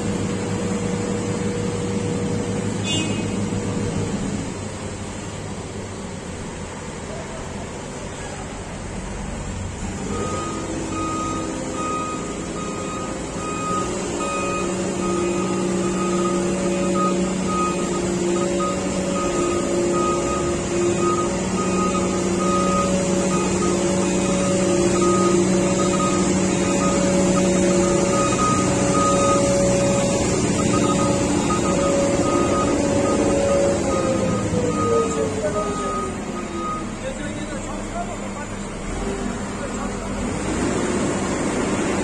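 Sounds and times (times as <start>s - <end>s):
diesel roller engine running: 0.0s - 42.0s
backup alarm beeping: 10.0s - 37.0s.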